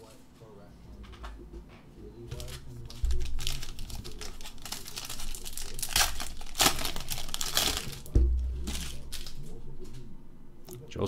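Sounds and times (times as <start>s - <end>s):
foil wrapper crinkling and tearing: 2.3s - 9.6s
dull bump: 8.1s - 9.1s.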